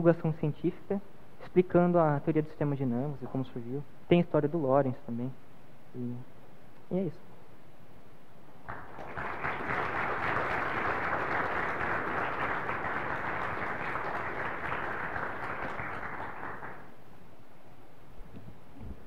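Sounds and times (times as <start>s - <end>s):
audience applauding: 8.6s - 17.0s.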